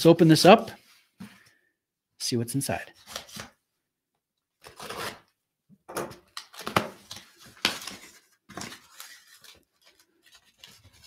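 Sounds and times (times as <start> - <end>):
knife cutting box packaging: 4.6 - 5.3, 6.1 - 11.0.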